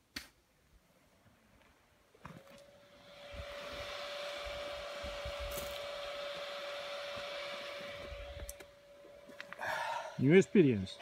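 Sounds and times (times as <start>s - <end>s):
small motor whining: 2.3s - 11.0s.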